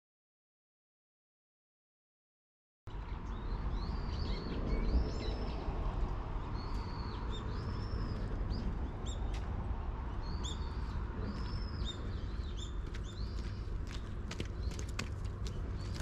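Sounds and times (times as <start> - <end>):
steady low rumble: 2.9 - 16.0
small birds chirping: 6.4 - 16.0.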